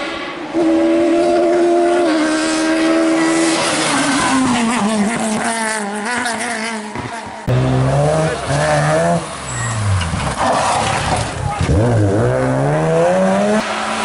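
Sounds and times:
rally car engine high revs: 0.5s - 14.0s.

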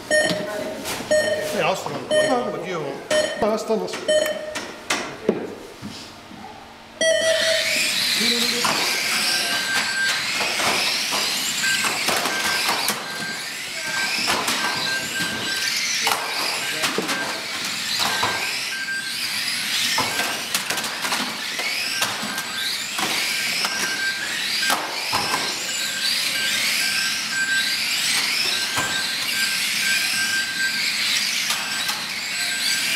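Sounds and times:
short high beep: 0.1s - 2.5s, 4.1s - 4.6s, 7.0s - 7.7s
toy car motors whining: 7.0s - 32.9s
toy cars clacking into barriers: 8.4s - 32.9s.

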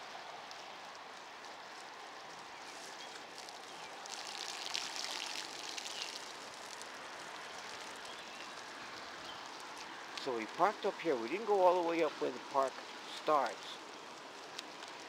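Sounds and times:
bike tyres hissing on wet pavement: 0.0s - 15.0s
rain falling: 0.0s - 15.0s
water splashing: 3.2s - 8.1s.

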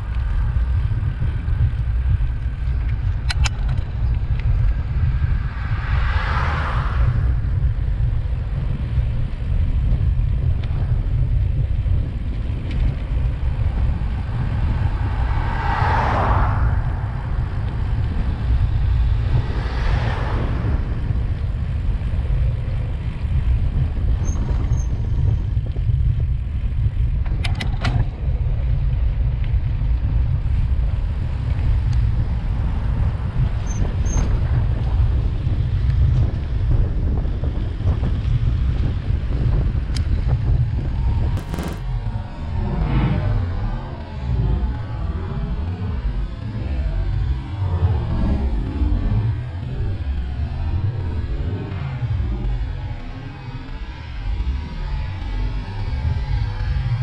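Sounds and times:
wind and road rumble: 0.0s - 57.0s
cars passing close by: 4.3s - 8.6s, 13.4s - 22.6s.

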